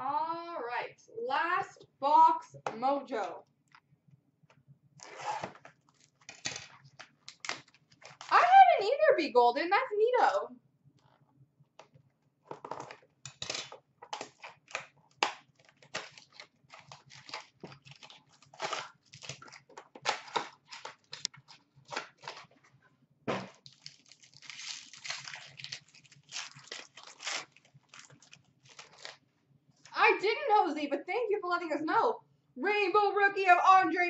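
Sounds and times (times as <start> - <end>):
cardboard and foil wrapper tearing: 5.4 - 8.5, 13.3 - 22.5, 23.4 - 29.2.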